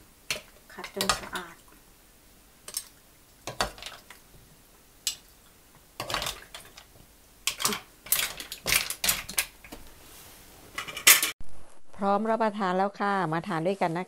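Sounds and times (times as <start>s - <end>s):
mussel shells clattering: 7.5s - 9.6s
utensils scraping a frying pan: 10.1s - 11.4s.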